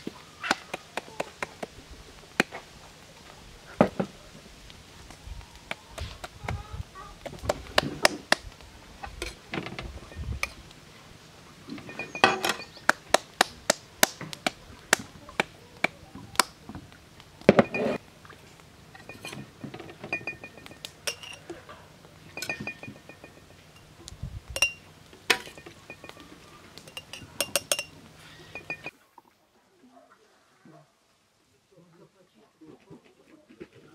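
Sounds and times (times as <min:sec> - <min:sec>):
utensils clinking against dishes: 0:11.7 - 0:12.9, 0:17.5 - 0:18.0, 0:19.0 - 0:24.0, 0:24.6 - 0:28.9.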